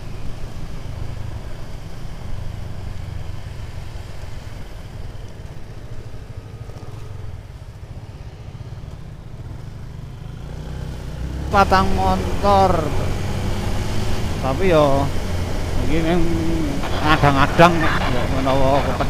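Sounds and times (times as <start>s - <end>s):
road noise: 0.0s - 19.0s
motorcycle engine rumble: 0.2s - 19.0s.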